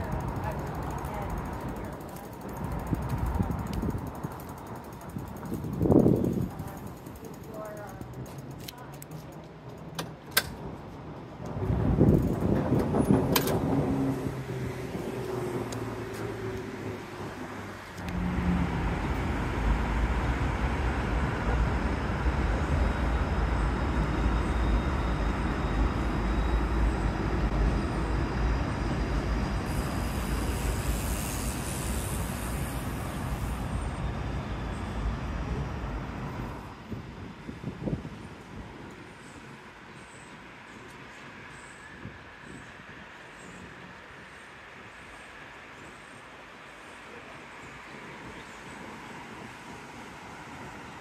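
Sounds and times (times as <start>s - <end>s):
vehicle engine rumbling: 0.0s - 38.0s
high hiss: 29.6s - 34.2s.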